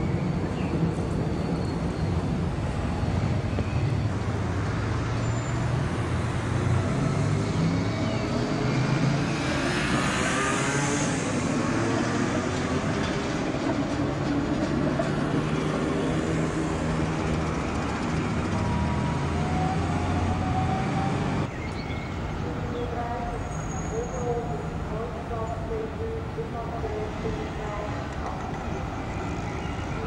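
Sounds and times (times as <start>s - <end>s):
traffic hum: 0.0s - 30.0s
tram rolling past: 10.1s - 30.0s.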